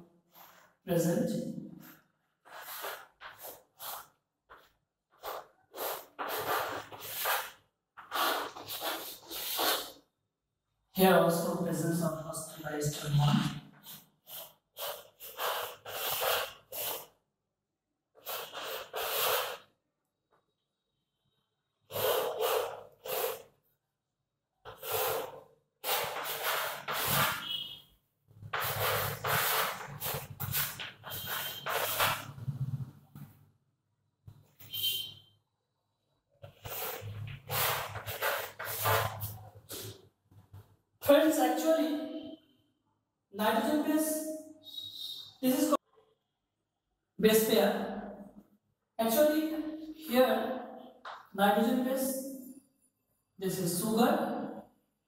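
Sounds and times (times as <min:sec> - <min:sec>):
chalk scratching on a blackboard: 0:01.9 - 0:10.1, 0:13.8 - 0:17.2, 0:18.2 - 0:19.7, 0:21.9 - 0:23.6, 0:24.7 - 0:27.8, 0:28.4 - 0:32.5, 0:36.4 - 0:40.0.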